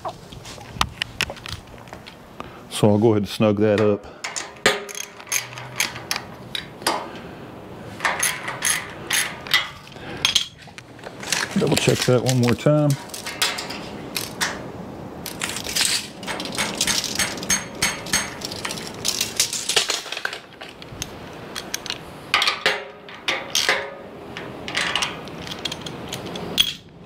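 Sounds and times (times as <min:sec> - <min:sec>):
tools and bolts clinking: 0:03.8 - 0:07.1, 0:07.9 - 0:27.0.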